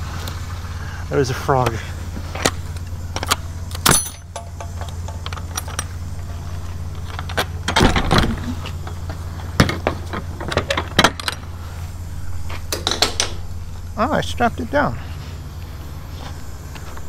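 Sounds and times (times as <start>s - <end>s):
truck engine idling: 0.0s - 17.0s
keys rattling: 2.5s - 7.8s
padlock metal clicks and clinks: 3.2s - 6.0s.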